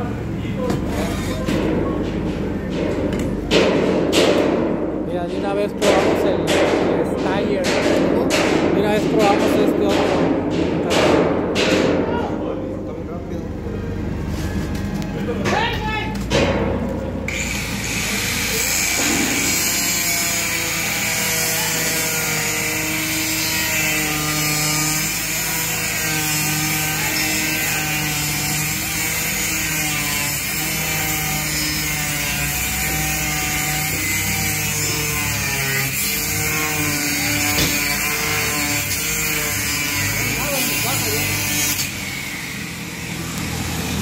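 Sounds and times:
angle grinder cutting metal: 0:17.2 - 0:44.0.

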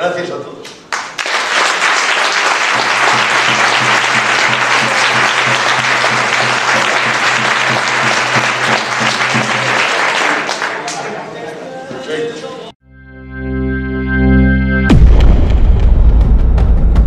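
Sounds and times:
audience applauding: 0:00.9 - 0:11.3.

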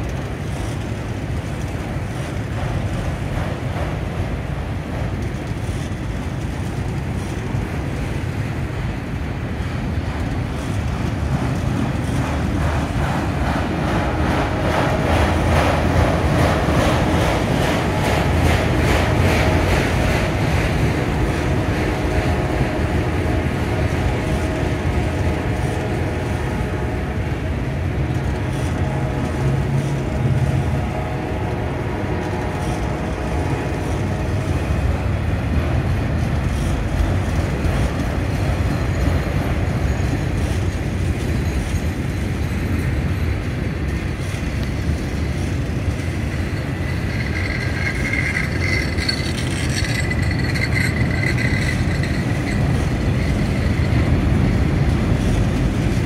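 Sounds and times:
train wheels rumbling on rail: 0:00.0 - 0:56.0
high steady tone: 0:46.0 - 0:54.5.

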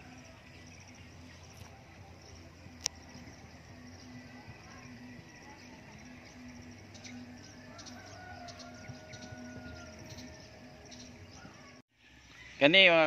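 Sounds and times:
insects chirping: 0:00.0 - 0:12.7.

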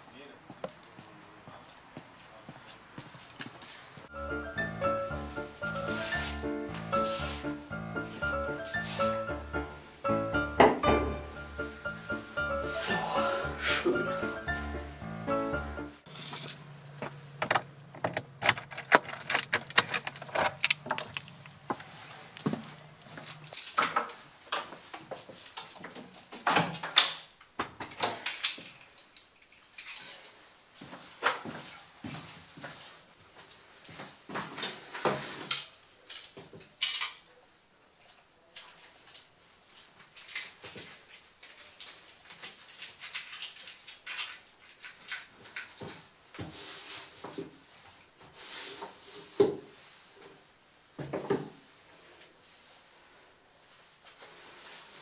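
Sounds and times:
clothing rustling: 0:04.6 - 0:10.2, 0:51.6 - 0:55.0
door latch and handle clicks: 0:17.4 - 0:21.5.

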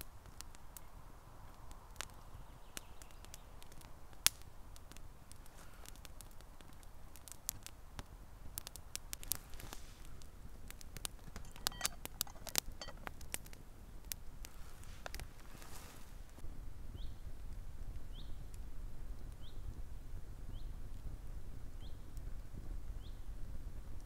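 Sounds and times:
campfire crackling and popping: 0:00.0 - 0:16.4, 0:17.2 - 0:24.0
metal lid clinking on pot: 0:11.4 - 0:13.0.

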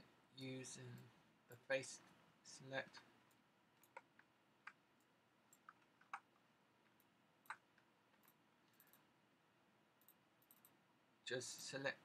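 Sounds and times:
computer mouse clicks: 0:03.3 - 0:09.1, 0:10.0 - 0:10.8.

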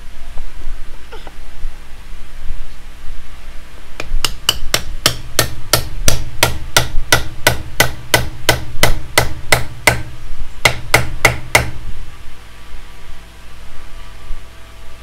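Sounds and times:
hammer striking wood: 0:04.0 - 0:11.8.

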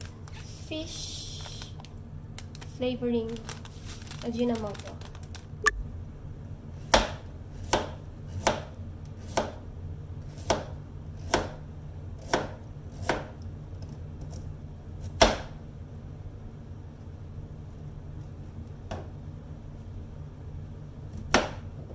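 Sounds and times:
low hum: 0:05.3 - 0:06.7
knife chopping on cutting board: 0:06.8 - 0:09.6, 0:10.3 - 0:11.6, 0:12.2 - 0:13.3.

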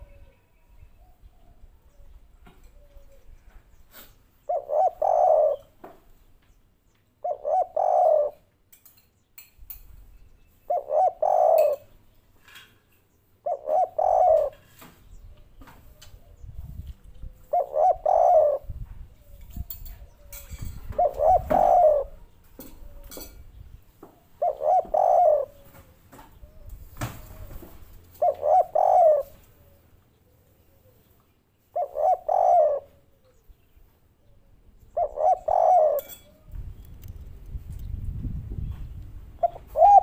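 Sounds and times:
dove cooing: 0:00.0 - 0:06.0, 0:07.2 - 0:08.5, 0:10.7 - 0:12.0, 0:13.4 - 0:33.6, 0:34.2 - 0:36.7, 0:39.3 - 0:40.0.

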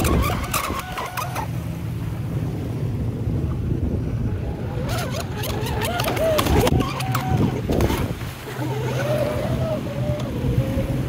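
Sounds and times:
toy boat motor whine: 0:00.0 - 0:01.6, 0:04.3 - 0:11.0
boat hull slapping waves: 0:00.0 - 0:11.0
wind rumbling on microphone: 0:00.0 - 0:11.0.

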